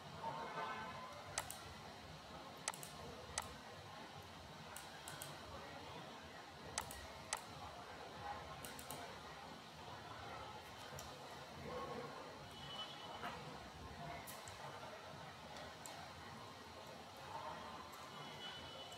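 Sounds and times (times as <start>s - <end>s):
computer mouse clicks: 1.4s - 1.6s, 2.6s - 3.5s, 4.8s - 5.4s, 6.8s - 7.5s, 8.6s - 9.0s.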